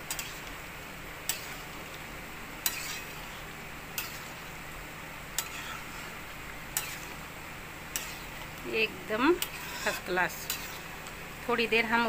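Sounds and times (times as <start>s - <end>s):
sizzling pan: 0.0s - 12.0s.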